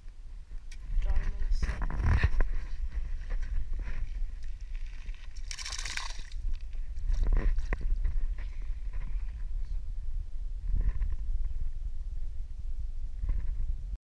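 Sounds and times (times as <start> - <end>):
fish splashing in water: 5.2 - 6.6.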